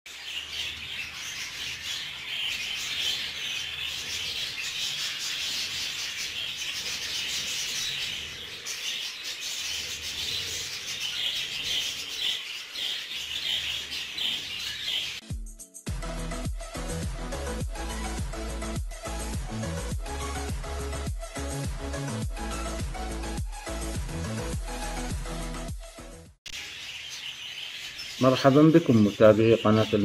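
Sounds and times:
budgerigars chattering: 0.1s - 15.2s, 26.5s - 30.0s.

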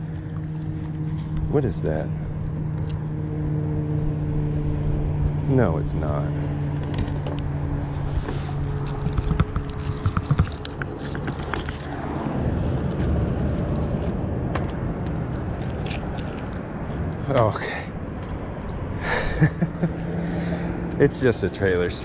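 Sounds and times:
motor idling hum: 0.0s - 17.3s, 18.0s - 22.0s
rustling: 7.8s - 14.2s, 15.1s - 17.2s.

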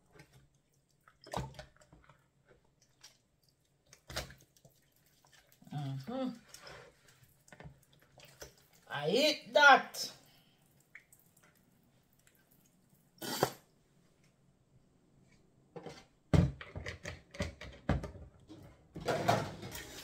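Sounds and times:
knocks and clatters in sink: 15.8s - 20.0s.

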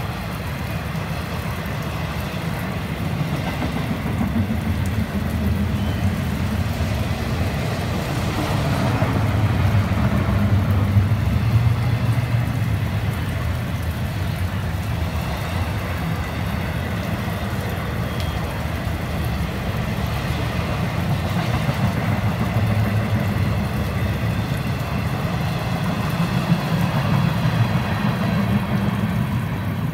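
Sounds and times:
train wheels rumbling on rails: 0.0s - 29.9s.

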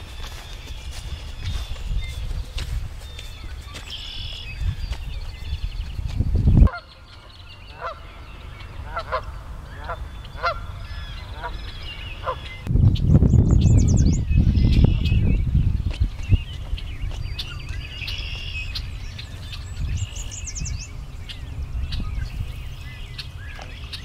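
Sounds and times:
small birds singing: 0.0s - 24.0s
goose honking: 7.7s - 8.1s, 8.9s - 12.5s.

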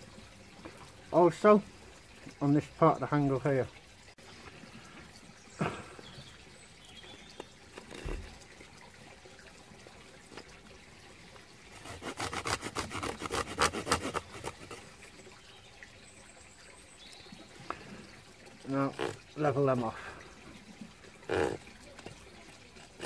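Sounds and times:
saw cutting wood: 11.7s - 14.8s, 21.3s - 21.6s.

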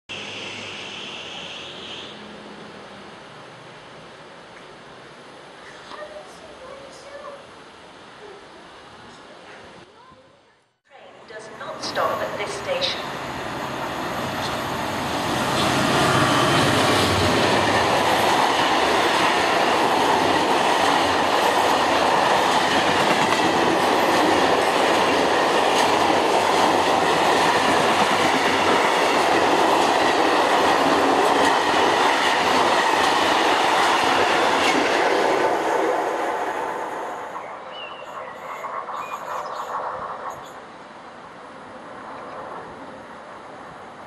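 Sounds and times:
diesel locomotive passing: 0.1s - 5.6s, 11.1s - 44.0s.

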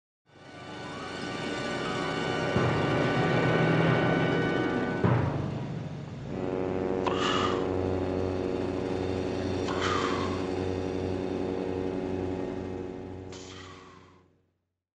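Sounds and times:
low musical chord with pulsing bass: 0.7s - 14.2s
man making mouth gunshot sounds: 7.0s - 7.7s, 9.6s - 10.4s.

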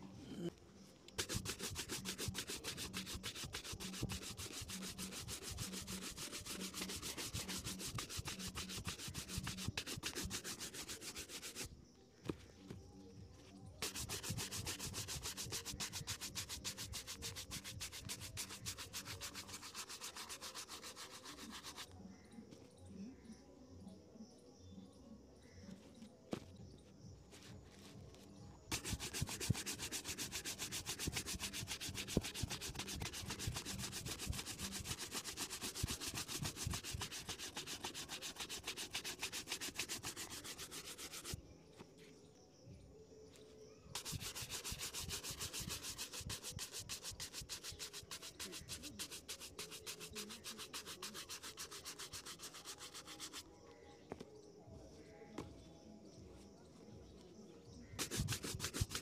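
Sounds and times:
brush scrubbing leather shoe: 1.2s - 11.7s, 13.8s - 21.9s, 28.7s - 41.4s, 43.9s - 53.5s, 58.0s - 59.0s.

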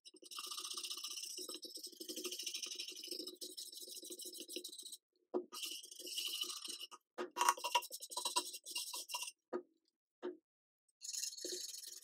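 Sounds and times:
brush scrubbing wood: 7.6s - 9.3s.

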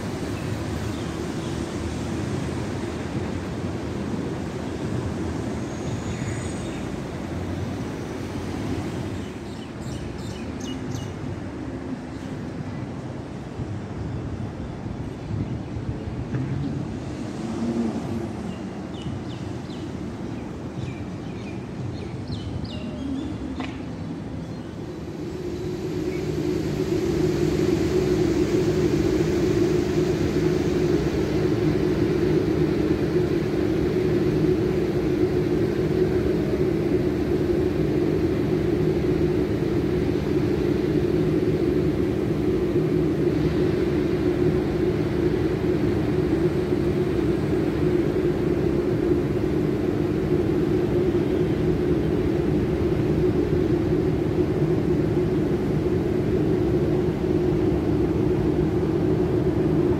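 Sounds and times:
wind rumble: 0.0s - 59.9s
road traffic: 15.8s - 48.5s
low hum: 21.7s - 59.9s.

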